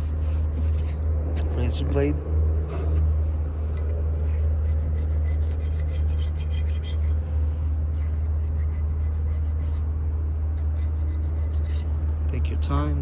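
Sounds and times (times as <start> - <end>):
steady low hum: 0.0 - 13.0
razor blade scraping sealant: 4.3 - 7.2.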